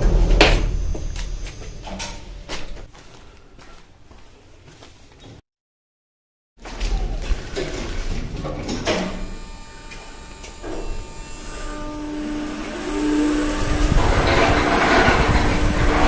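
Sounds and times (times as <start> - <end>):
rushing noise of lift car: 0.0 - 2.5, 7.6 - 16.0
lift motor hum: 0.0 - 2.9, 7.0 - 16.0
rising whine: 0.0 - 2.9, 8.8 - 16.0.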